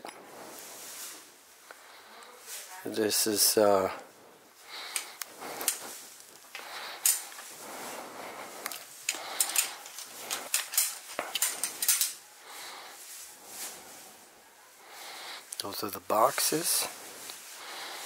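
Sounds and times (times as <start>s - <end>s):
camera handling clicks and rustles: 8.6s - 12.2s.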